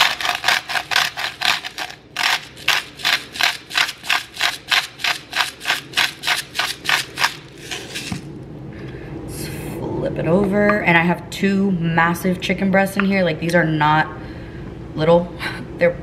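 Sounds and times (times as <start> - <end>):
salt grinder rasping: 0.0 - 8.3.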